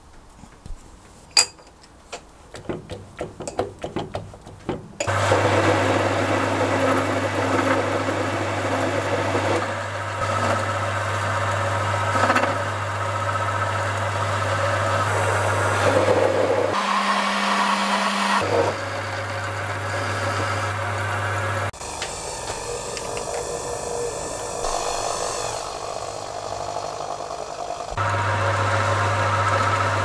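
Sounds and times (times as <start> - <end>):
metal lathe running: 5.0 - 30.0
lathe controls clicking: 21.8 - 24.0.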